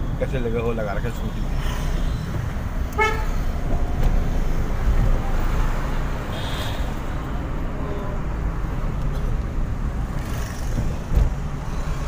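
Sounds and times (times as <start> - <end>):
traffic engine rumble: 0.0 - 12.0
vehicle horn toot: 3.0 - 3.4.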